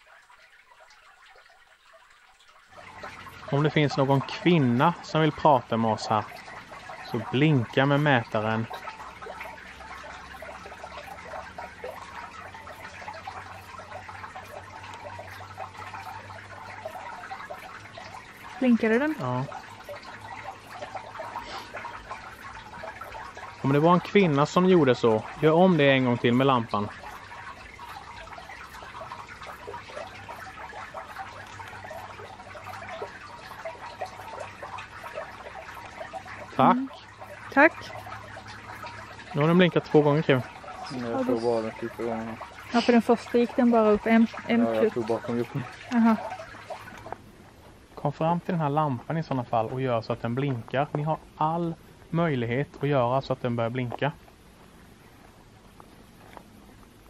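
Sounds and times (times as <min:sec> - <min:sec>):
low steady hum: 0:00.0 - 0:57.0
water trickling and dripping: 0:00.0 - 0:57.0
faint small ticks: 0:08.7 - 0:23.7, 0:26.2 - 0:41.0, 0:53.7 - 0:57.0.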